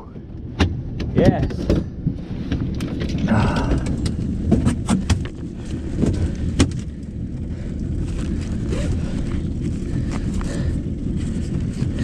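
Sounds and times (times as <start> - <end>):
low rumble: 0.0 - 12.0
knocks and thumps on boat: 0.6 - 7.0.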